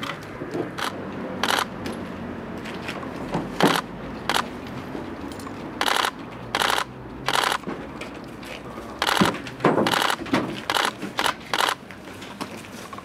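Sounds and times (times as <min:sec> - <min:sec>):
sharp clicking bursts: 0:00.0 - 0:01.7, 0:03.6 - 0:04.6, 0:05.8 - 0:07.7, 0:09.0 - 0:11.9.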